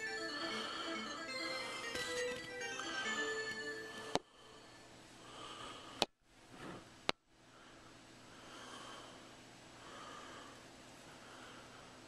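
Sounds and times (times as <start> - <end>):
faint breathing through nose: 3.9 - 6.0, 7.5 - 12.0.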